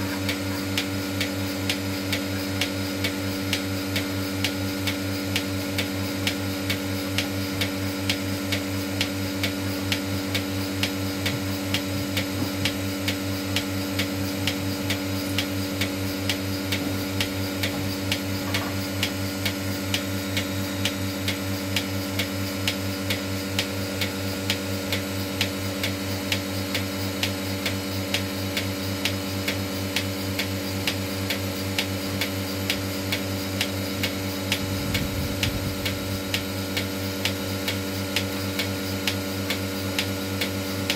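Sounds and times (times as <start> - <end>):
vacuum pump humming: 0.0 - 40.9.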